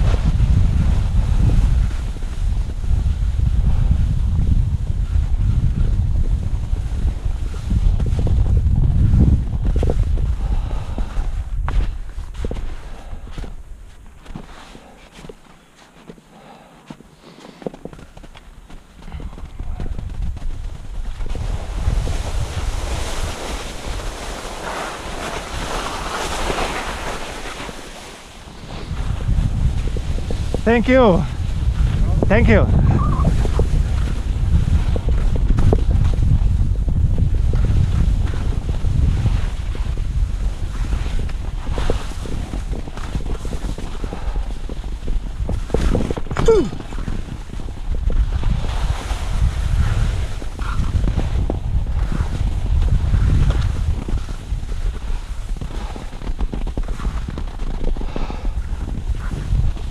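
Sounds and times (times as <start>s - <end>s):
wind rumbling on microphone: 0.0s - 15.7s, 17.7s - 59.9s
skis scraping on snow: 5.1s - 32.6s, 33.4s - 46.2s, 46.8s - 59.9s
skis hissing on snow: 21.5s - 29.0s
falling pitch tone: 32.8s - 33.4s.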